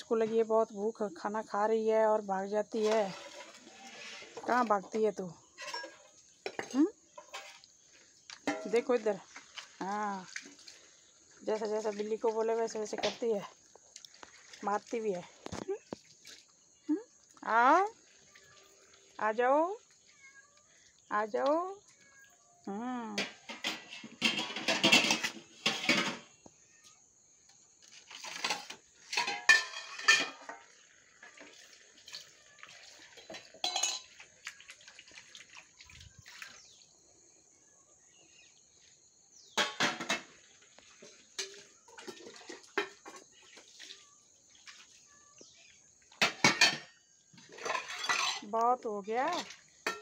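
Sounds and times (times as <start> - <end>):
bowl clinking on concrete: 5.4 - 9.7, 28.2 - 32.3, 33.1 - 34.7, 41.0 - 43.6, 46.1 - 48.5, 49.3 - 50.0.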